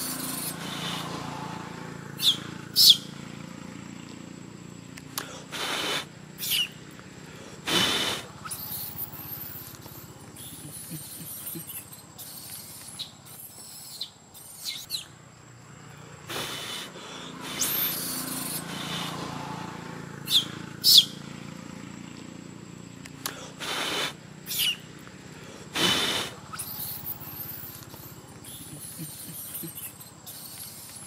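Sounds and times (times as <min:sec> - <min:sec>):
infant monkey squealing: 0:00.0 - 0:01.2, 0:02.2 - 0:03.1, 0:05.3 - 0:06.8, 0:07.7 - 0:15.1, 0:16.3 - 0:19.2, 0:20.2 - 0:21.2, 0:23.4 - 0:24.9, 0:25.7 - 0:31.0.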